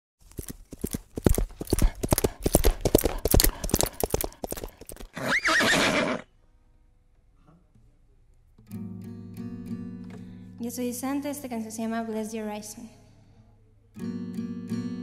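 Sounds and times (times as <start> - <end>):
horse hooves galloping: 0.2 - 5.7
horse whinnying: 3.8 - 6.3.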